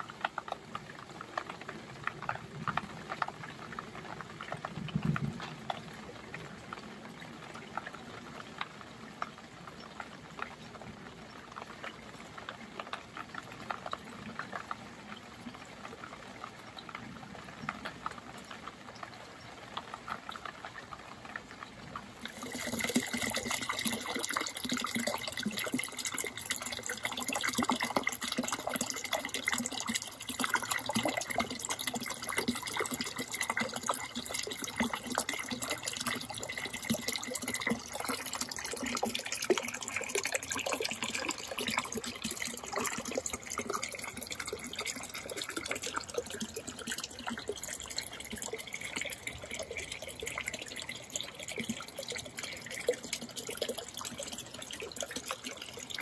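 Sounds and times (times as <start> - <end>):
rain dripping: 0.0 - 56.0
fountain water splashing: 18.9 - 56.0.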